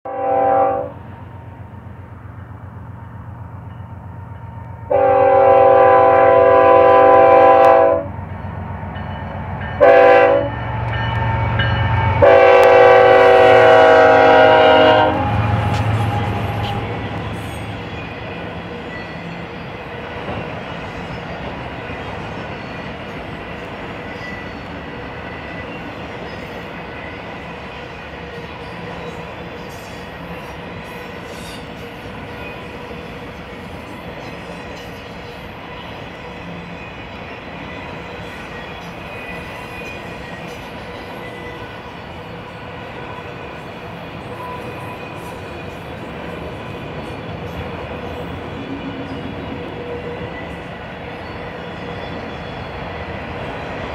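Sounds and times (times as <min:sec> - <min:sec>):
locomotive air horn: 0:00.0 - 0:01.0, 0:04.9 - 0:08.2, 0:09.8 - 0:10.6, 0:12.1 - 0:17.0
locomotive rumble: 0:05.6 - 0:23.8.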